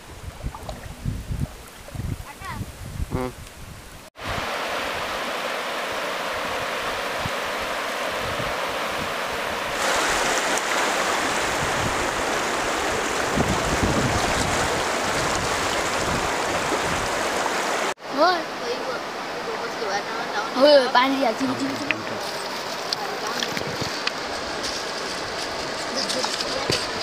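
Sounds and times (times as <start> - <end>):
wind rumble on microphone: 0.0 - 5.1, 6.4 - 10.3, 11.2 - 17.5, 23.4 - 27.0
river water rushing over stones: 4.2 - 27.0.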